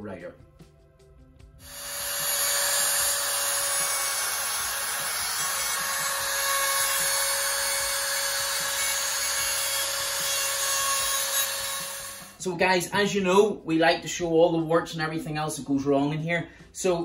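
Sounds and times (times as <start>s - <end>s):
router cutting into wood: 1.6s - 12.4s.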